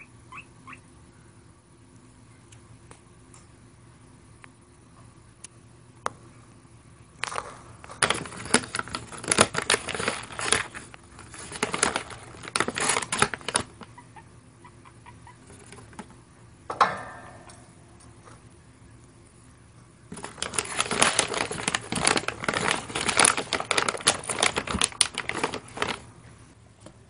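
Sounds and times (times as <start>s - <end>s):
guinea pig rustling in bedding: 7.2s - 16.2s, 20.1s - 26.6s.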